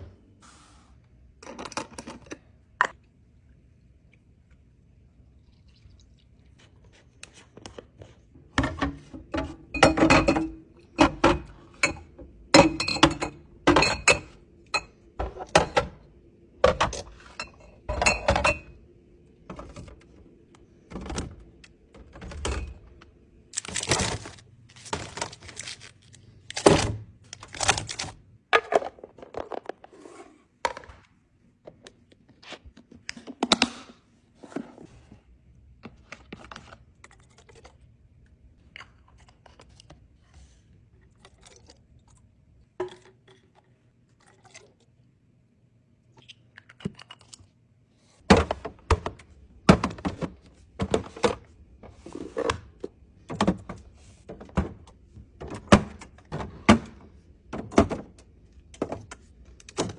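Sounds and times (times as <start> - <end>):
bottles clinking: 9.6 - 15.8, 17.3 - 18.8
plastic packaging crinkling: 23.5 - 26.6
bottles knocking on plastic shelves: 48.3 - 51.4.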